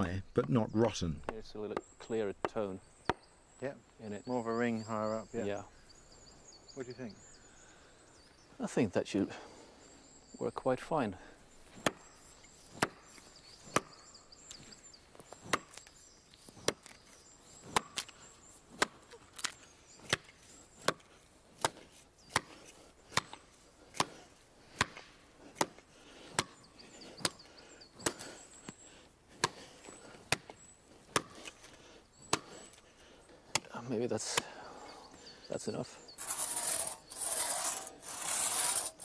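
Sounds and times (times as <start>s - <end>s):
axe chopping wood: 11.7s - 12.1s, 12.7s - 13.1s, 13.7s - 14.0s, 15.4s - 15.8s, 17.6s - 18.1s, 18.7s - 26.6s, 29.3s - 29.6s, 30.3s - 31.5s, 32.3s - 32.6s.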